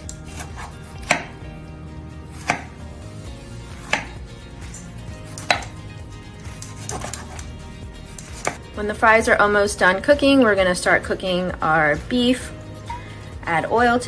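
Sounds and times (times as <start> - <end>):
knife chopping on wooden board: 0.0 - 1.4, 2.3 - 2.8, 3.7 - 4.2, 5.3 - 5.8, 6.5 - 7.5, 8.1 - 8.6.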